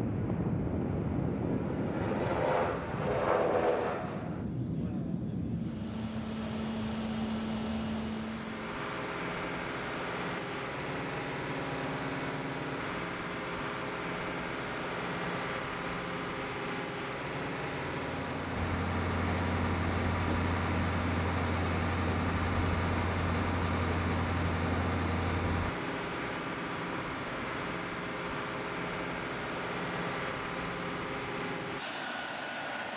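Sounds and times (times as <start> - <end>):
jet engines droning: 0.0 - 32.9
deep hum: 5.4 - 10.7, 18.1 - 25.7.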